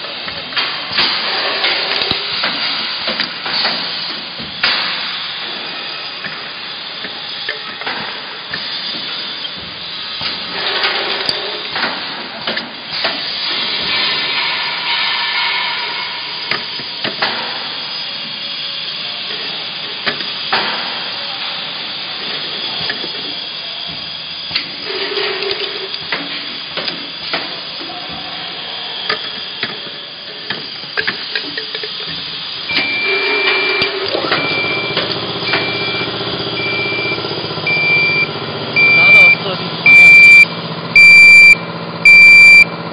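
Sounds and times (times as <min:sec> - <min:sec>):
machine air hiss: 0:00.0 - 0:40.0
pneumatic cutter clicks and knocks: 0:16.5 - 0:17.6
high electronic beep: 0:32.7 - 0:42.7.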